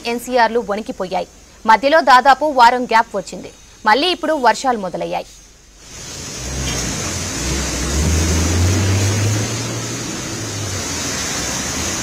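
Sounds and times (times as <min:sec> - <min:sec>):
rain hiss and water spray: 0:00.0 - 0:12.0
vehicle driving through water: 0:05.8 - 0:12.0.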